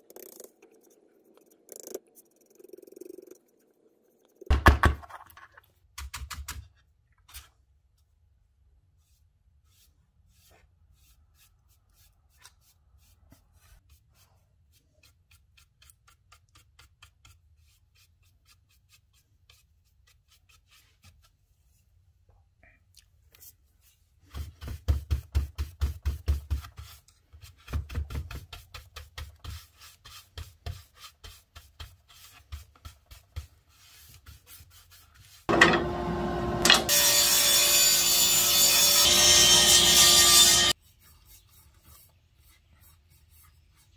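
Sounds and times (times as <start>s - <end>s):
paintbrush dabbing ticks: 0.0s - 4.5s
hand sanding wooden board: 24.4s - 35.5s
table saw humming: 35.5s - 40.7s.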